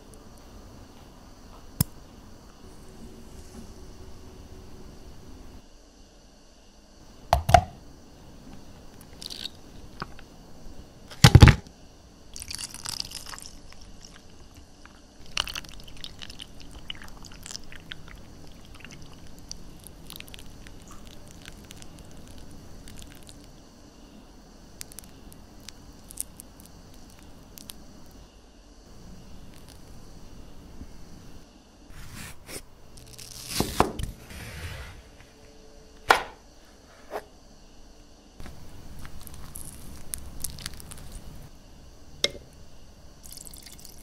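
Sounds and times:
crackly rustle: 38.4s - 41.5s.

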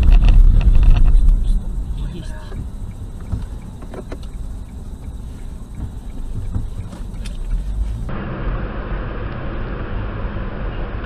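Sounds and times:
faint ticks: 0.0s - 8.1s
car road and engine rumble: 0.0s - 11.0s
hissy road noise: 0.0s - 11.0s.

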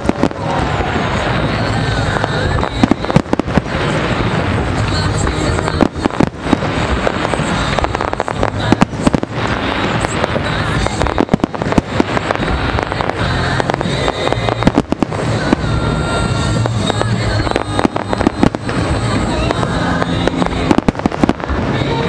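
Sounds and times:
continuous rumble: 0.0s - 22.0s
fireworks bursting bangs: 0.0s - 22.0s.

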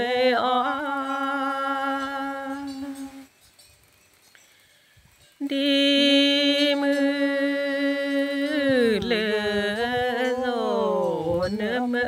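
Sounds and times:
person chanting a poem: 5.4s - 12.0s.

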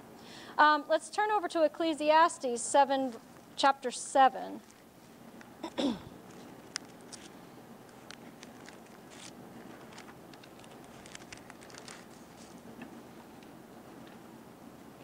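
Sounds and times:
thin pages rustling: 6.2s - 12.7s.

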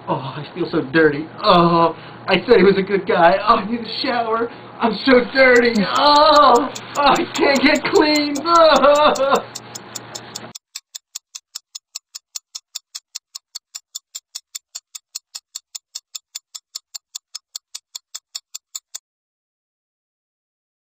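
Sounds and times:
mechanical ticking: 5.1s - 19.0s.

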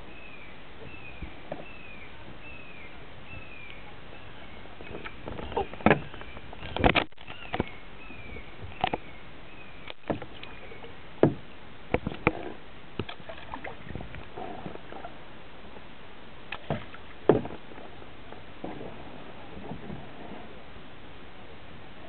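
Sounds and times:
paddle pulling through water: 0.0s - 22.0s
paddle knocking on plastic kayak: 4.8s - 7.7s, 9.9s - 10.6s, 11.2s - 14.1s, 16.6s - 17.6s.

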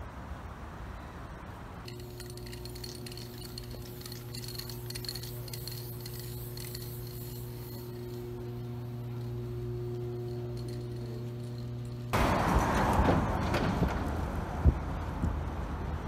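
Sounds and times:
low machine hum: 1.9s - 12.7s
spray can hissing: 2.0s - 11.7s.

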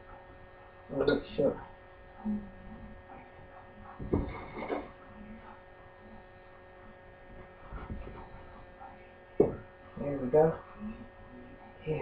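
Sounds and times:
electrical hum: 0.0s - 12.0s
glass thud on wooden board: 9.4s - 9.6s.

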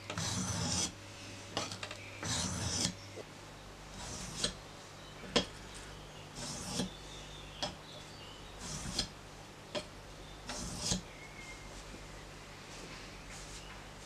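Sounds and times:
knife scraping on sharpening stone: 0.1s - 0.9s, 1.6s - 3.0s, 4.0s - 4.6s, 6.4s - 6.9s, 8.6s - 9.1s, 10.5s - 11.0s.

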